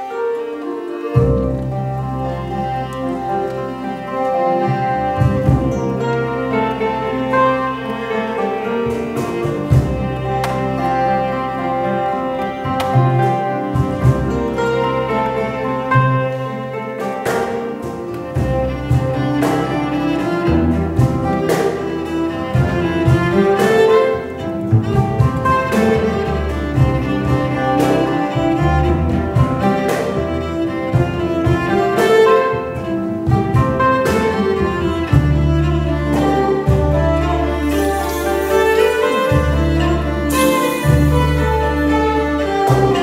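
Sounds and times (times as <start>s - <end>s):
double bass: 0.0s - 43.0s
fiddle melody: 0.0s - 43.0s
hand drum beating: 5.0s - 6.4s, 17.0s - 43.0s.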